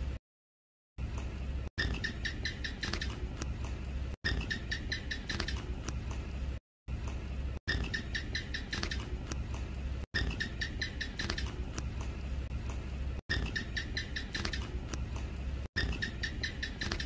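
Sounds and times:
low steady hum: 0:01.0 - 0:16.9
gecko chirping: 0:01.8 - 0:03.5, 0:04.2 - 0:05.8, 0:07.7 - 0:09.4, 0:10.2 - 0:11.8, 0:13.3 - 0:15.0, 0:15.8 - 0:17.0.

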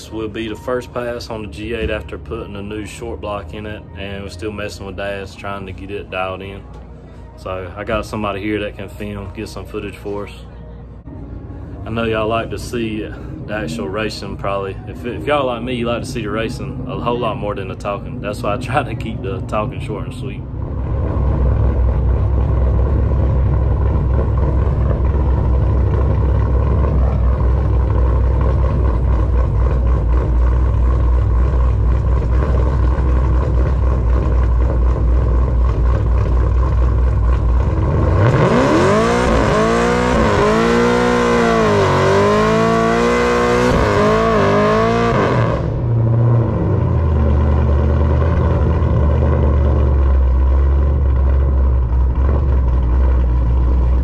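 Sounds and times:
car engine idling and revving: 0:00.0 - 0:54.0
tires spinning: 0:12.0 - 0:54.0.

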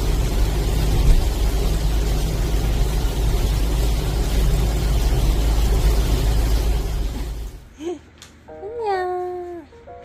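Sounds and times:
loud steady rumble: 0:00.0 - 0:07.7.

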